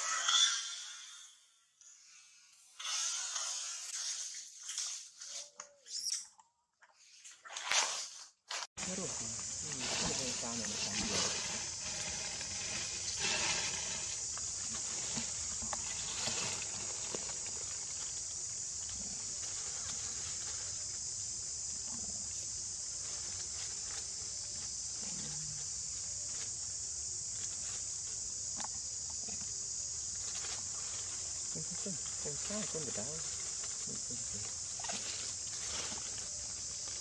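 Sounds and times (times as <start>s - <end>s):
insects droning: 8.8s - 37.0s.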